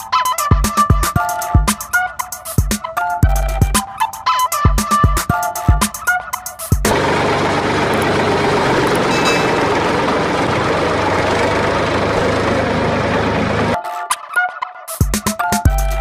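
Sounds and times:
tractor engine running: 0:06.8 - 0:13.8.

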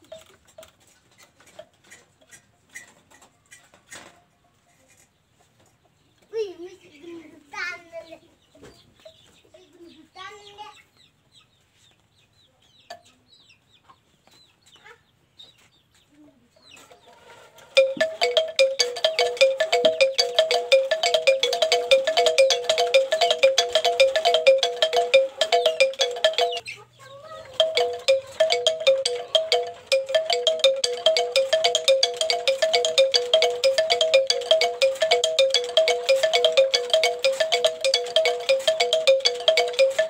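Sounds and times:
bamboo two-note chime: 0:17.8 - 0:26.6, 0:27.6 - 0:40.0.

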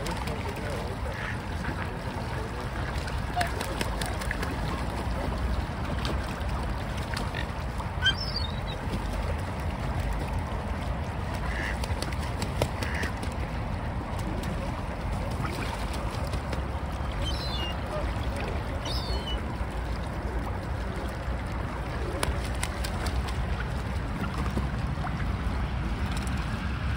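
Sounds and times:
birds splashing in water: 0:00.0 - 0:26.9
gull cries: 0:08.0 - 0:08.8
duck quacks: 0:11.5 - 0:11.8, 0:12.8 - 0:13.1.

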